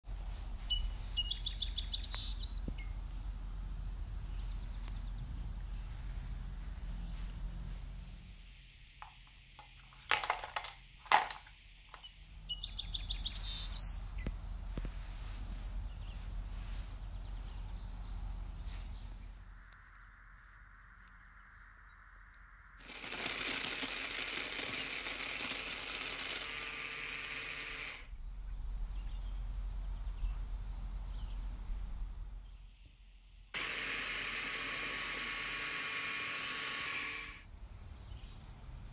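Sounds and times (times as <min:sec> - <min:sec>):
hard pieces clattering in plastic bowl: 0:09.6 - 0:11.6.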